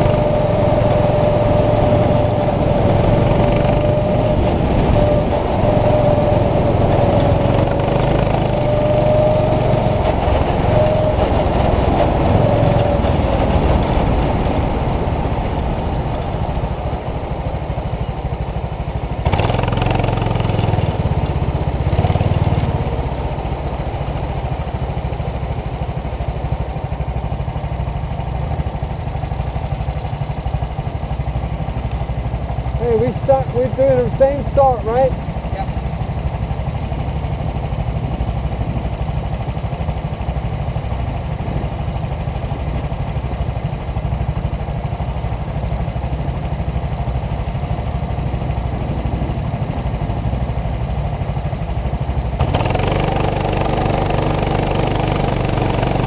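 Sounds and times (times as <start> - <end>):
go-kart engine slowing to idle: 0.0 - 56.0.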